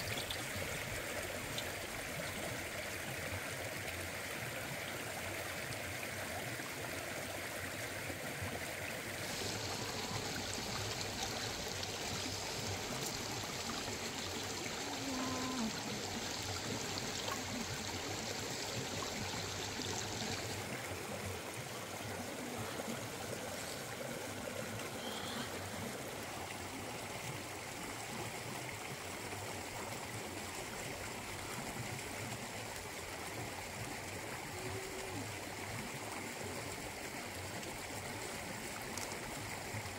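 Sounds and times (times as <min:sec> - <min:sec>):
river water running over rocks: 0:00.0 - 0:39.9.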